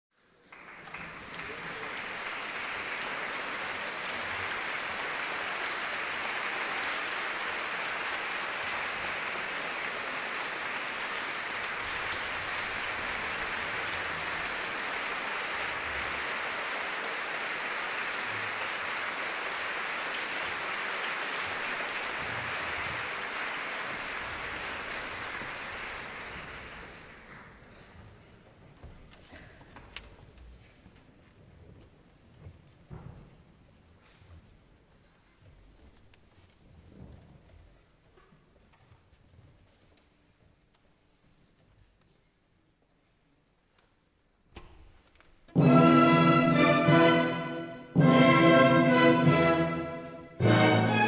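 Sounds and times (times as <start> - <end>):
audience applauding: 0.2 - 27.7.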